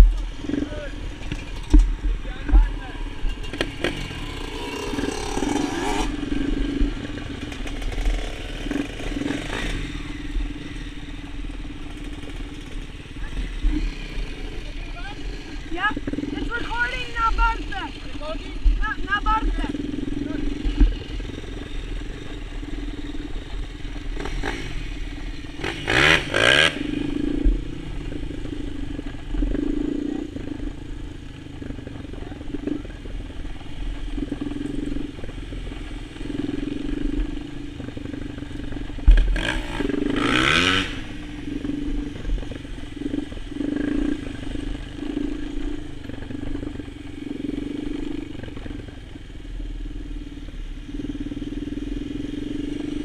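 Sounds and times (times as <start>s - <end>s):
quad bike engine running: 0.0s - 53.0s
engine revving bursts: 24.0s - 27.6s, 39.1s - 42.0s.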